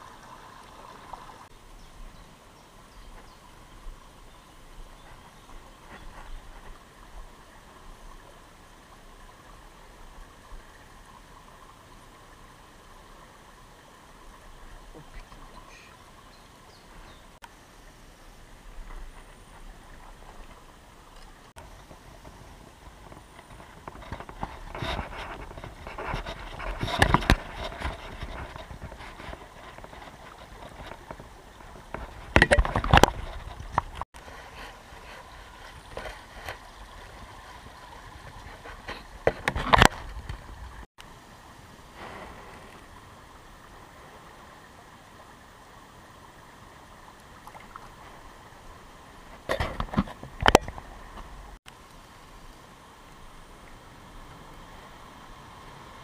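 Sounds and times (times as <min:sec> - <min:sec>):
stream running over stones: 0:00.0 - 0:56.0
knocks and rustles near microphone: 0:21.6 - 0:36.6, 0:38.2 - 0:40.6, 0:49.4 - 0:51.3.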